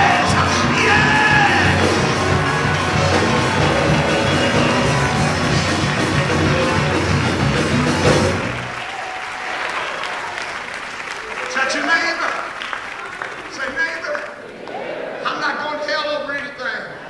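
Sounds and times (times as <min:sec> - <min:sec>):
loud rock band music: 0:00.0 - 0:08.8
applause: 0:00.0 - 0:14.4.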